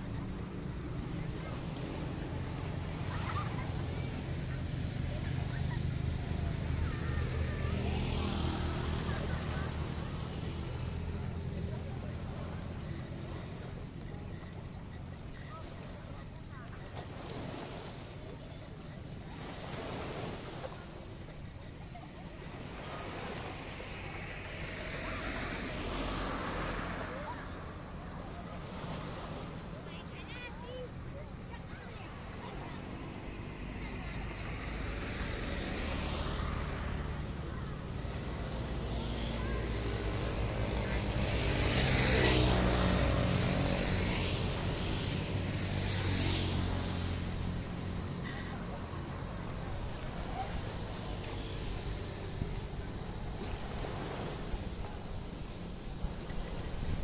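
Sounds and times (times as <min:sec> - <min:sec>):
waves washing onto stony beach: 0:00.0 - 0:57.0
wind rumbling on microphone: 0:39.8 - 0:57.0.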